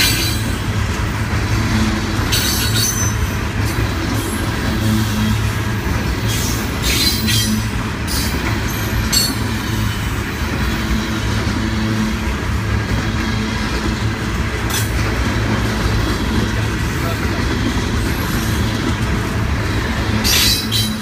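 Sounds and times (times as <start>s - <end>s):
train wheels rumbling on rails: 0.0s - 21.0s
high-pitched wheel squeals: 20.2s - 21.0s.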